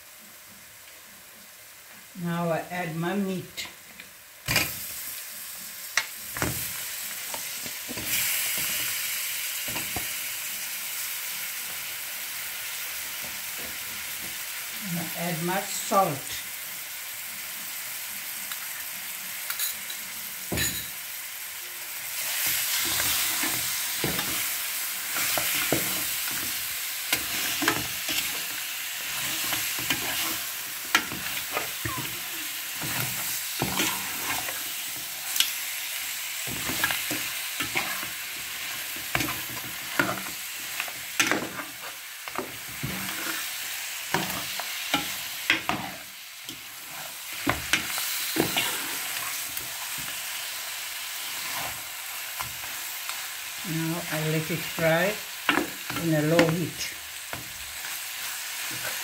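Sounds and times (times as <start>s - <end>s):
meat sizzling in oil: 0.0s - 59.0s.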